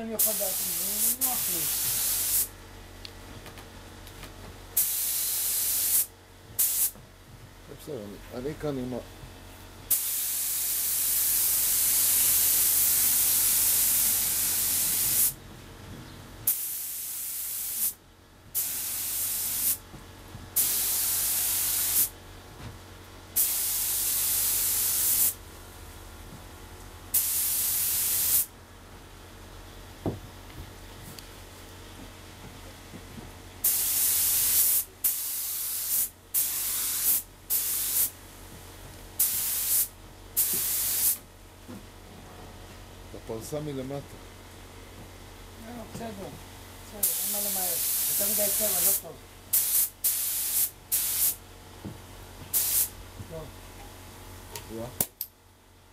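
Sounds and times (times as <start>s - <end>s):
spray gun air hissing: 0.2s - 2.5s, 4.8s - 7.0s, 9.9s - 15.4s, 16.5s - 18.0s, 18.6s - 19.8s, 20.6s - 22.1s, 23.4s - 25.4s, 27.1s - 28.5s, 33.6s - 38.1s, 39.2s - 41.2s, 47.0s - 51.4s, 52.5s - 52.9s.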